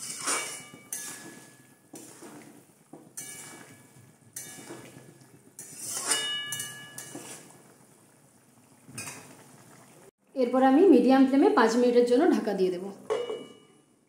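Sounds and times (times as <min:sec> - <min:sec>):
metal spatula scraping metal pan: 0:00.0 - 0:02.5, 0:03.1 - 0:07.6.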